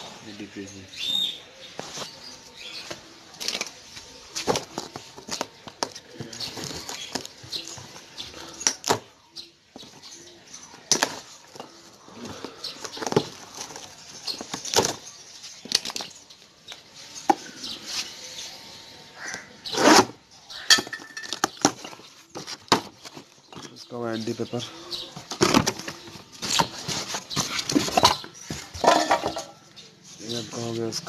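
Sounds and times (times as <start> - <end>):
cardboard box and tools handled: 3.0 - 9.1, 10.8 - 16.2, 21.2 - 23.8, 25.0 - 29.5.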